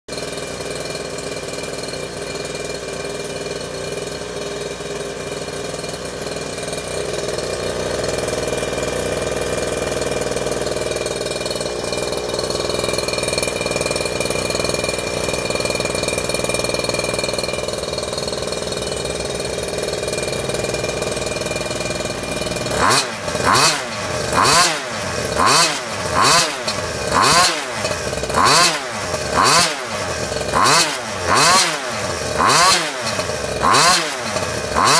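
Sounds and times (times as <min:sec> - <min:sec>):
two-stroke engine idling: 0:00.1 - 0:34.9
engine revving in blips: 0:21.5 - 0:34.9.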